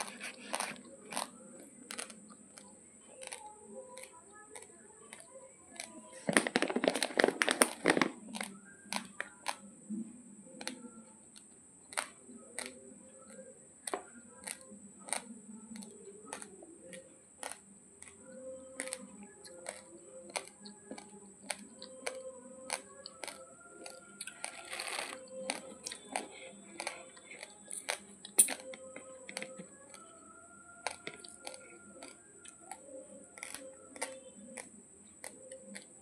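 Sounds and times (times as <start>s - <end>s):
plastic bag crinkling: 6.3s - 8.6s.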